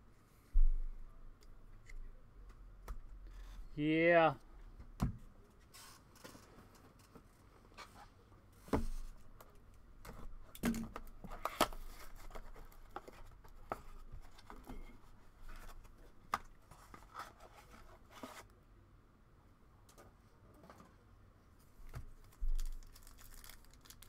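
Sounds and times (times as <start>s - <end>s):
cards and wrappers rustling: 22.0s - 24.0s.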